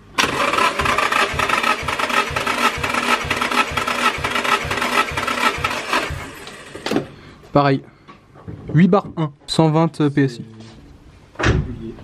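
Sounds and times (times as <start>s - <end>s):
starter motor cranking engine: 0.0s - 7.1s.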